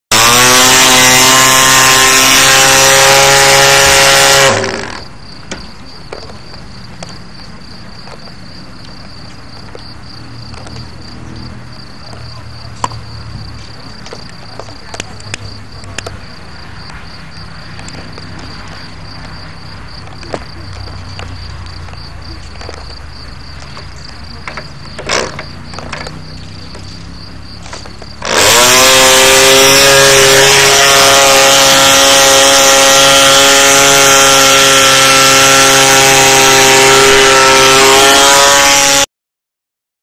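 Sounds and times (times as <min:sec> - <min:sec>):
model aircraft engine buzzing: 0:00.1 - 0:05.2, 0:27.6 - 0:39.1.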